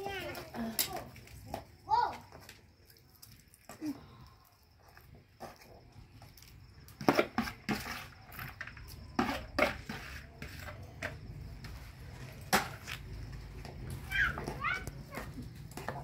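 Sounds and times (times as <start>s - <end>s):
metal spoon scraping a pot: 7.0s - 11.2s.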